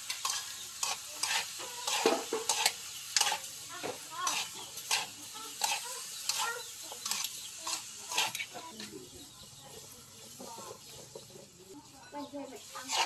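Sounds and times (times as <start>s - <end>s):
food sizzling: 0.0s - 13.0s
utensil scraping metal wok: 0.0s - 13.0s.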